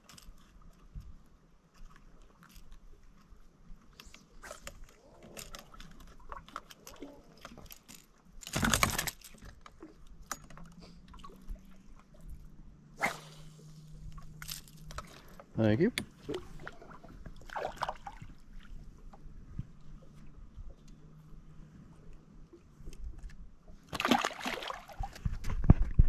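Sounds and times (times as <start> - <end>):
fishing tackle clicks and knocks: 4.1 - 11.6, 14.1 - 16.4.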